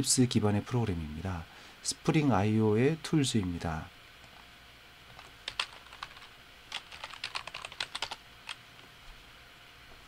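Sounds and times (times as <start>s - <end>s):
computer keyboard typing: 5.2s - 8.6s.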